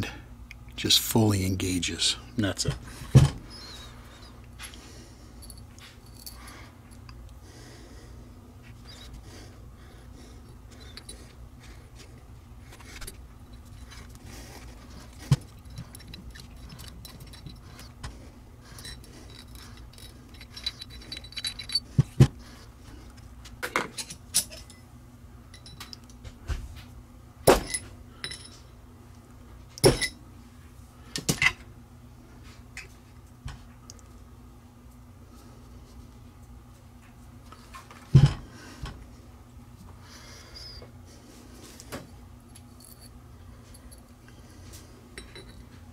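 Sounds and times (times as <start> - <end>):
steady low hum: 0.0 - 45.9
metal parts clinking: 13.0 - 18.0, 18.7 - 22.1.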